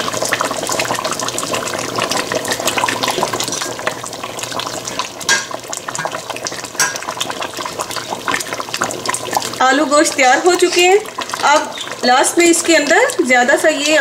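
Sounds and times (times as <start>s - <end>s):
curry bubbling and crackling: 0.0s - 14.0s
ladle stirring a pot: 0.1s - 14.0s
ladle knocking against steel pot: 6.8s - 7.0s.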